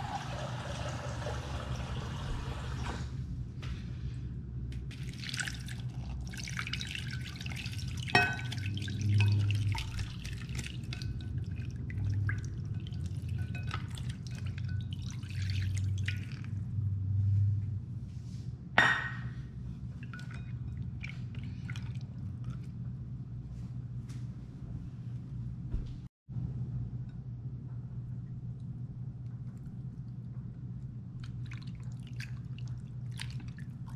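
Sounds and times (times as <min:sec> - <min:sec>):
water pouring and splashing: 0:00.0 - 0:03.1, 0:04.8 - 0:16.6, 0:20.0 - 0:22.7, 0:31.2 - 0:33.9
steady low hum: 0:03.0 - 0:33.9.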